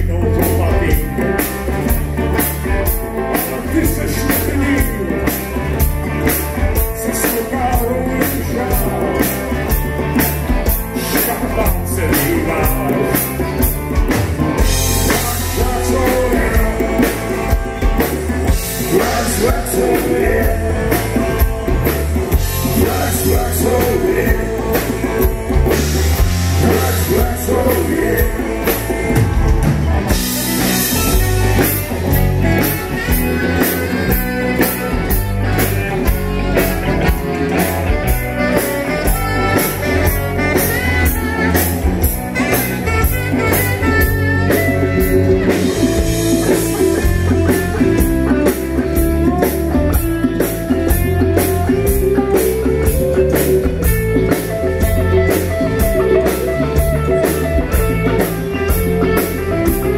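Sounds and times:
bass guitar: 0.0 - 59.9
drum beat: 0.0 - 59.9
electric guitars: 0.0 - 59.9
tenor saxophone: 31.0 - 46.2.

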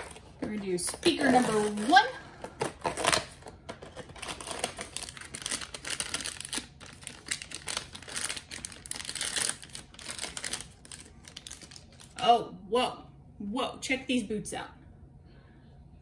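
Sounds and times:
plastic packet crinkling: 0.0 - 12.2
plastic packet tearing: 0.9 - 12.2.

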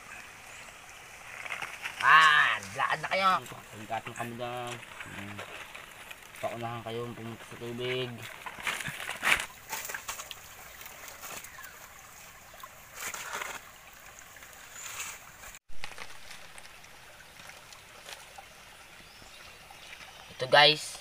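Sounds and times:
water trickling and splashing: 0.0 - 21.0.

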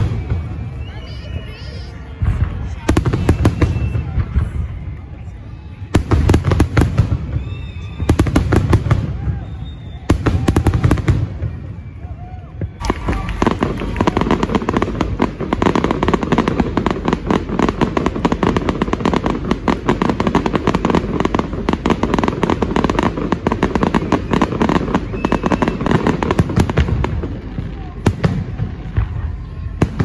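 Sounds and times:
fireworks rapid bangs and pops: 5.9 - 11.9, 12.6 - 30.0.

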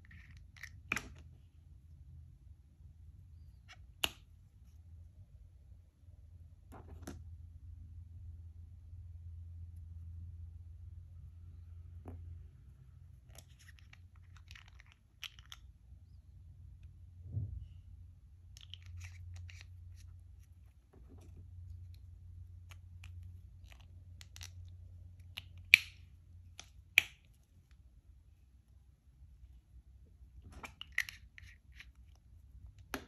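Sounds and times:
steady low hum: 1.3 - 13.5.

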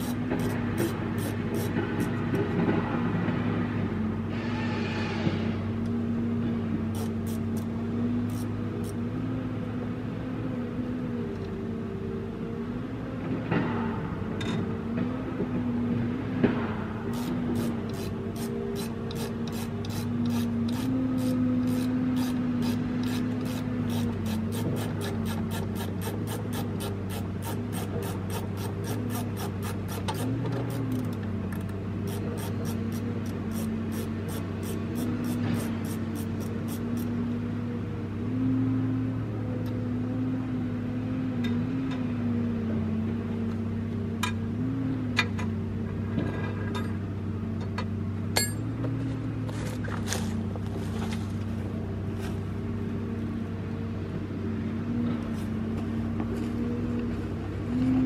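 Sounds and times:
machine engine running: 0.0 - 3.8, 16.4 - 37.2.

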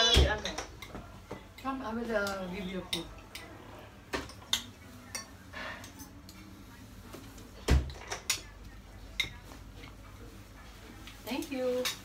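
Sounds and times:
cutlery clinking on plates: 4.1 - 6.5, 7.6 - 8.5.

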